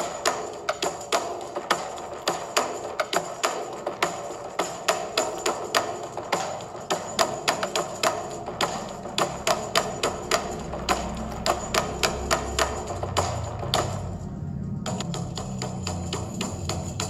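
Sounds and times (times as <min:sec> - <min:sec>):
wood-block percussive beat: 0:00.0 - 0:17.0
low bass part: 0:10.1 - 0:16.6.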